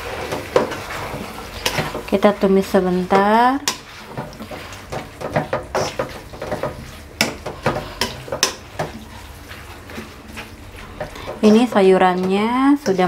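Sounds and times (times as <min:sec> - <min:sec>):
spatula scraping a wok: 0:00.0 - 0:13.0.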